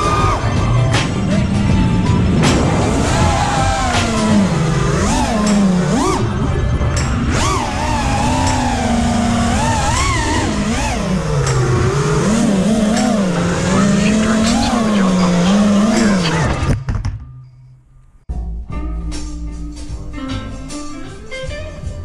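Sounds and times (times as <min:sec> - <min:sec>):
drone motors whining: 0:00.0 - 0:16.7
music: 0:00.0 - 0:22.0.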